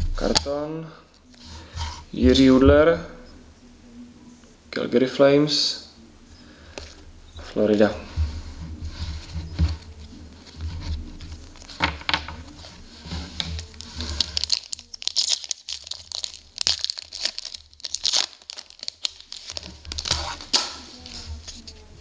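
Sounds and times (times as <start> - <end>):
foil wrapper crinkling: 13.4 - 21.6.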